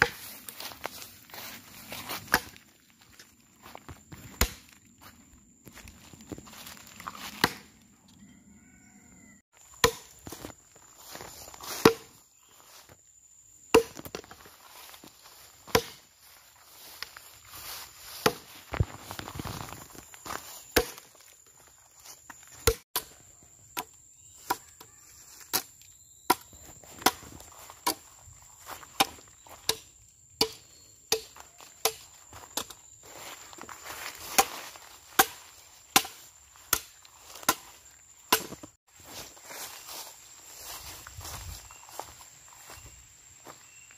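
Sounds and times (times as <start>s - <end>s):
machete chopping wood: 0.0s - 0.3s, 2.2s - 2.6s, 4.2s - 4.8s, 7.3s - 7.7s, 9.8s - 10.4s, 11.8s - 12.1s, 13.7s - 14.3s, 15.6s - 16.0s, 18.2s - 18.5s, 20.7s - 21.1s, 22.6s - 23.2s, 26.3s - 28.1s, 28.9s - 32.8s, 35.1s - 37.7s, 38.3s - 38.7s.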